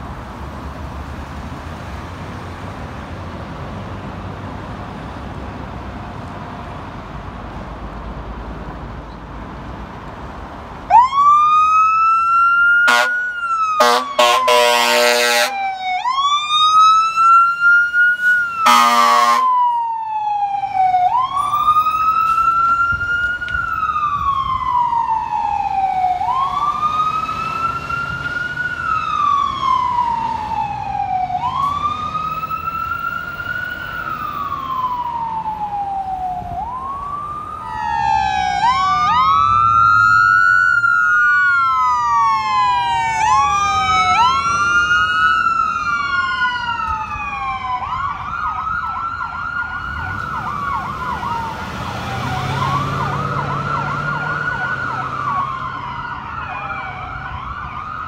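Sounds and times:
electronic siren wailing: 0:10.9 - 0:58.0
second siren wailing: 0:10.9 - 0:58.0
air horn blast: 0:12.9 - 0:13.2, 0:13.8 - 0:15.6, 0:18.6 - 0:19.5.

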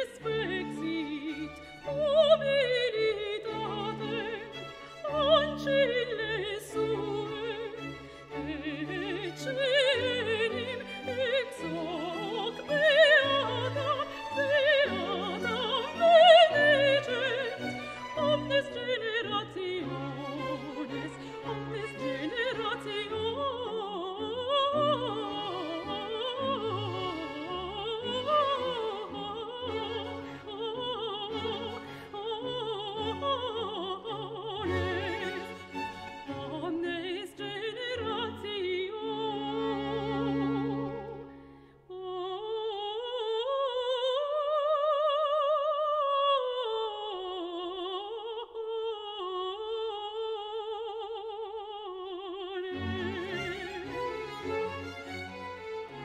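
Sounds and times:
opera singer with vibrato: 0:00.0 - 0:56.0
orchestra playing: 0:52.9 - 0:56.0.

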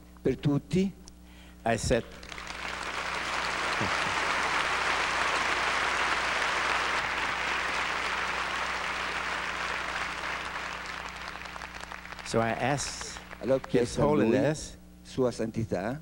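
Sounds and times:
large audience applauding: 0:02.2 - 0:14.0.

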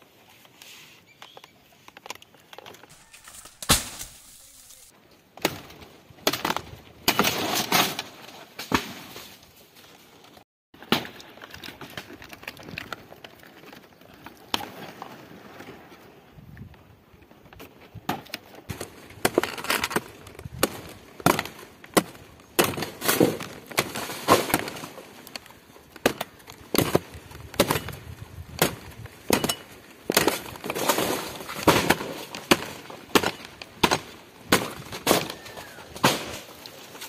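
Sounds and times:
knife chopping fibrous stalk: 0:02.9 - 0:04.9.

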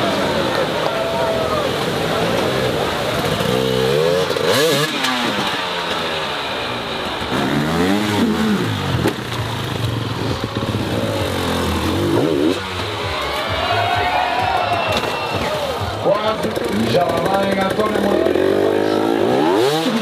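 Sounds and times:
motorcycle engines revving: 0:00.0 - 0:20.0.

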